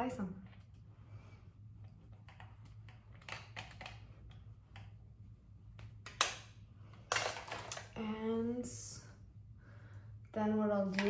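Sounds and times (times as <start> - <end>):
low steady hum: 0.0 - 11.0
makeup brush swishes and taps: 1.7 - 6.3.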